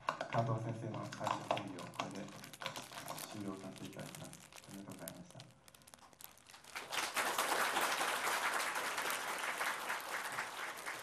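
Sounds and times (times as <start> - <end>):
audience applauding: 6.5 - 11.0.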